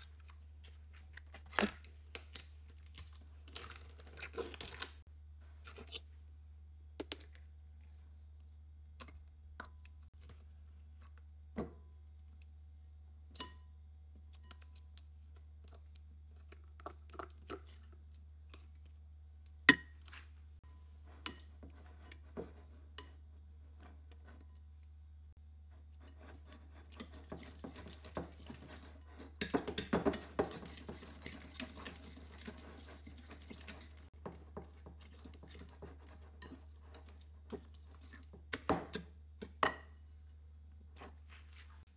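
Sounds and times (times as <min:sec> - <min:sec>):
whisk clattering in glass bowl: 0:26.1 - 0:37.1.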